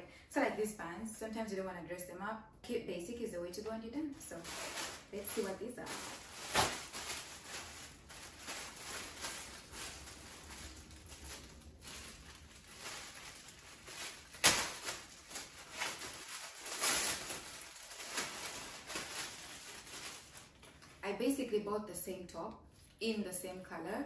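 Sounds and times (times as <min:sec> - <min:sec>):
plastic bag crinkling: 0:04.1 - 0:21.0.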